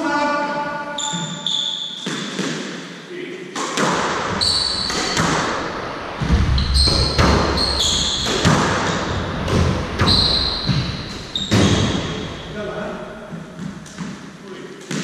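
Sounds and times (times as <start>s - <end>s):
shoes squeaking on wooden floor: 1.0s - 2.2s, 4.4s - 5.4s, 6.5s - 12.5s
squash ball hitting rackets and walls: 1.1s - 12.5s, 13.2s - 15.0s.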